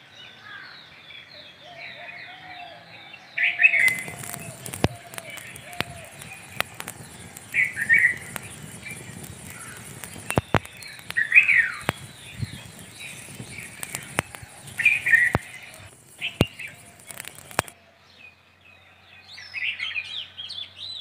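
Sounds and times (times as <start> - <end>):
birds chirping: 3.5 - 17.8
fire crackling ticks and pops: 3.8 - 17.8.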